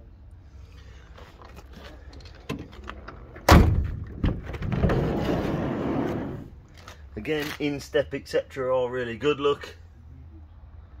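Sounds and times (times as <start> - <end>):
van door opening: 2.2 - 6.5
van door latch clunk: 2.5 - 4.6.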